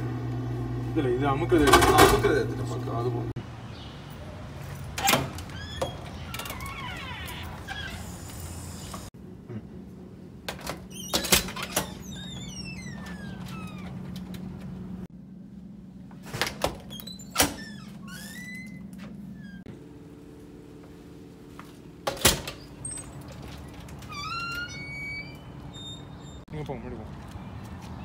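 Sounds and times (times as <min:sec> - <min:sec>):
steady low hum: 0:13.7 - 0:16.4.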